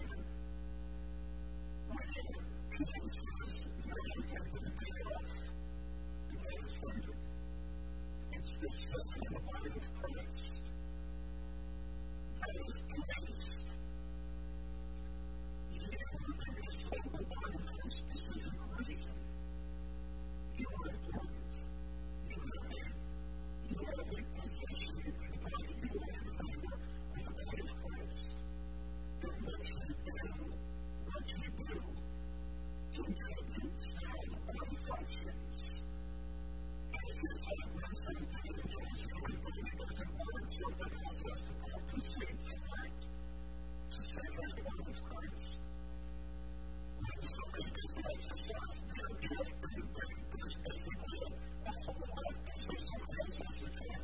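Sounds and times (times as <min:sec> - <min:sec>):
electrical mains hum: 0:00.0 - 0:54.0
man's voice: 0:01.9 - 0:05.5, 0:06.3 - 0:07.2, 0:08.3 - 0:10.6, 0:12.4 - 0:13.7, 0:15.7 - 0:19.2, 0:20.5 - 0:21.6, 0:22.3 - 0:23.0, 0:23.6 - 0:28.4, 0:29.2 - 0:32.0, 0:33.0 - 0:35.8, 0:36.9 - 0:43.0, 0:43.9 - 0:45.6, 0:47.0 - 0:54.0.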